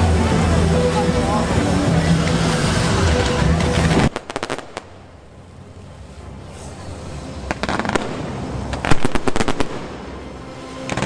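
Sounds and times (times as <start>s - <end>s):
fireworks bangs and crackles: 0.0s - 5.1s, 7.4s - 11.0s.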